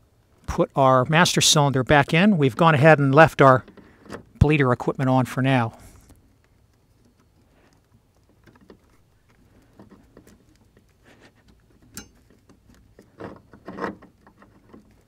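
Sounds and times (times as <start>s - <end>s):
small clicks: 6.0s - 15.0s.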